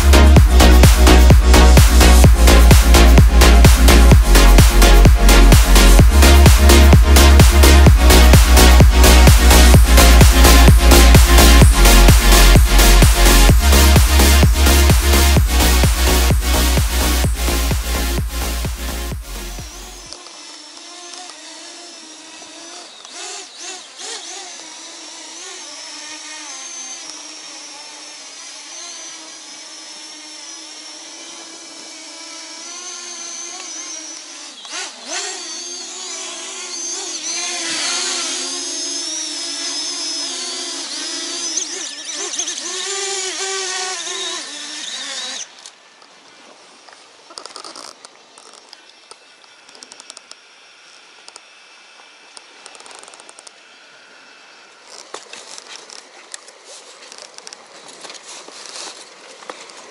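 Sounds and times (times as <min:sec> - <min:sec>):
drone propellers buzzing: 0:00.0 - 0:46.2.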